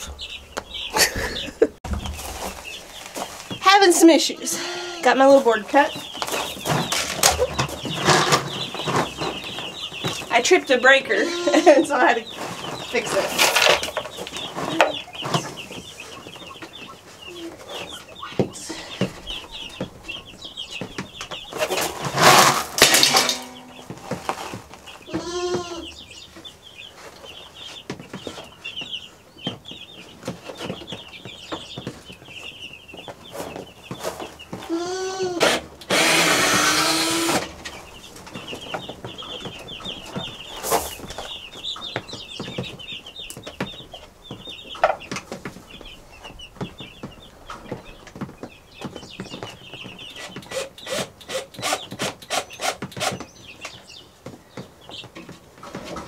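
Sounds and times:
chicks peeping: 0.0s - 56.0s
power drill driving screw: 35.4s - 37.5s, 50.5s - 53.2s.

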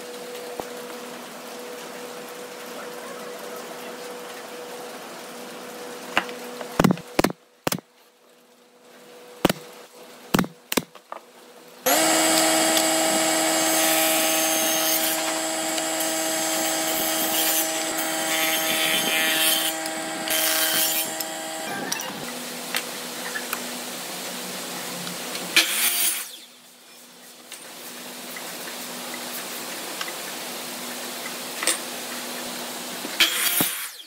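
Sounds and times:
table saw running: 11.9s - 22.5s.

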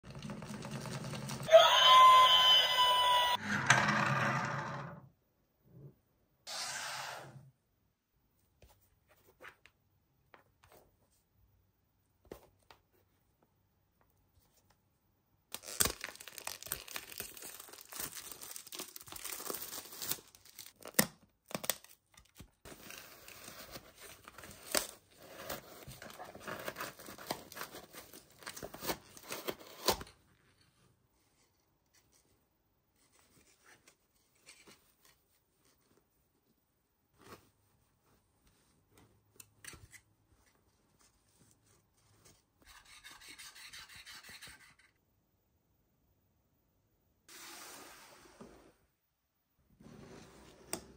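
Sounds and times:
plastic wrap crinkling and tearing: 15.5s - 25.1s.

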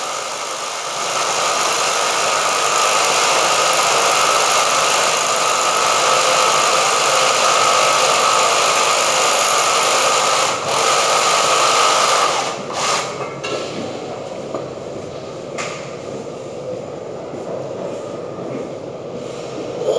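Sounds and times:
power drill whining: 0.0s - 13.1s.

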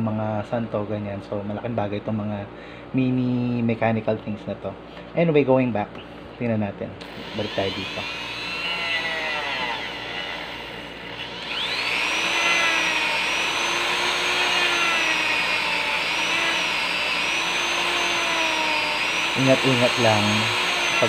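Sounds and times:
rotary tool motor whine: 7.0s - 21.0s.

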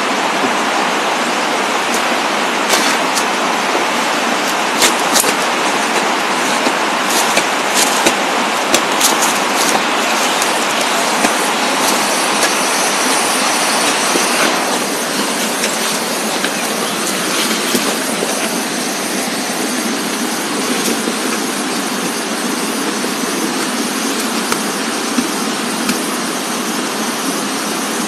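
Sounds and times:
steady rushing noise: 0.0s - 28.0s
hoe chopping into soil: 2.7s - 3.3s, 4.8s - 18.6s.

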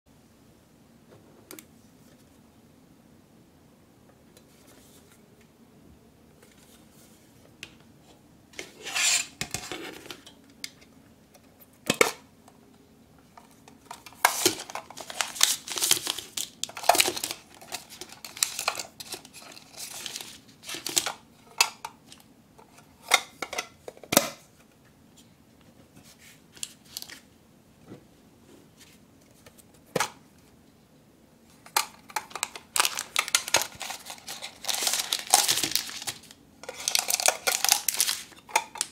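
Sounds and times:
plastic wrappers crinkling: 13.8s - 22.2s, 31.6s - 38.9s
packets rattling onto plastic plate: 13.9s - 22.2s, 31.6s - 38.9s.

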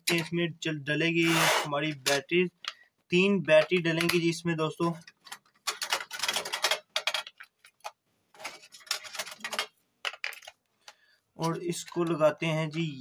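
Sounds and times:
batteries clicking into plastic compartment: 5.1s - 10.6s.

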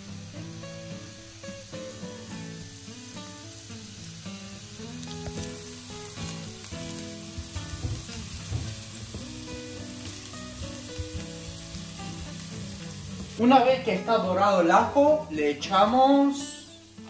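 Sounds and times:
garlic sizzling in oil: 0.0s - 17.0s
wooden spatula stirring in pan: 5.2s - 13.4s.

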